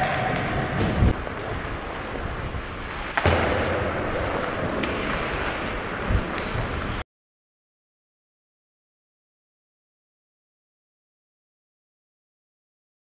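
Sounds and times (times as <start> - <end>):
skating and wind rushing noise: 0.0 - 7.0.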